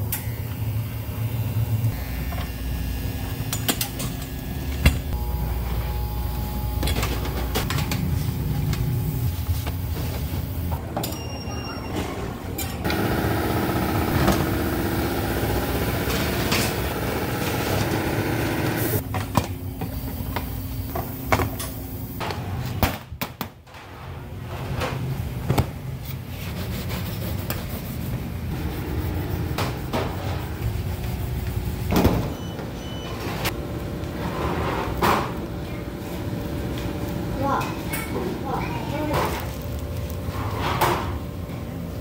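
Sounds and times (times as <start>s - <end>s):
machine hum: 0.1s - 10.8s, 12.4s - 20.9s, 27.8s - 32.8s.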